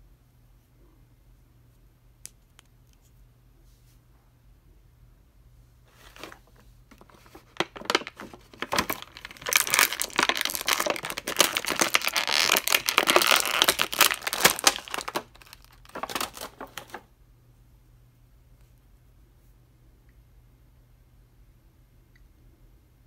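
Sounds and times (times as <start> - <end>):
plastic bag crinkling: 5.9 - 17.1.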